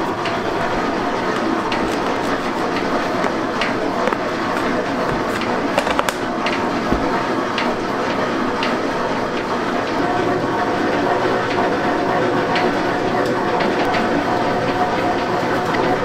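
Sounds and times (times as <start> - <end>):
machine running: 0.0 - 16.0
clicks and knocks: 0.2 - 7.8.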